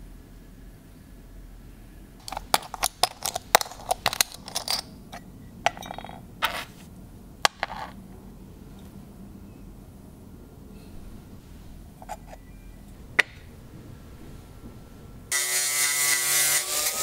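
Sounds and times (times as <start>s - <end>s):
metal plates clinking: 2.2s - 6.8s, 12.0s - 12.5s
small metal parts set down: 2.2s - 6.8s, 7.5s - 8.0s, 12.0s - 12.5s.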